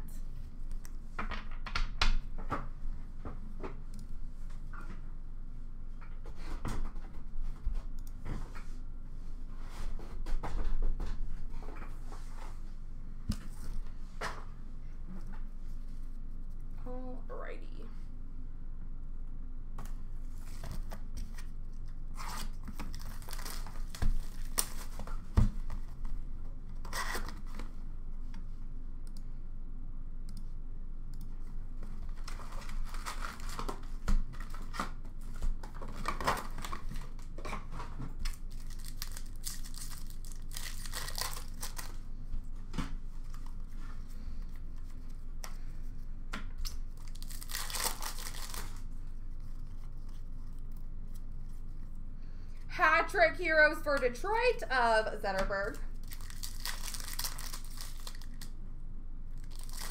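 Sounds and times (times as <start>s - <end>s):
foil packs ripping and crinkling: 22.2s - 25.2s, 32.2s - 37.6s, 38.2s - 42.0s, 46.9s - 48.9s, 55.9s - 58.5s, 59.4s - 59.9s.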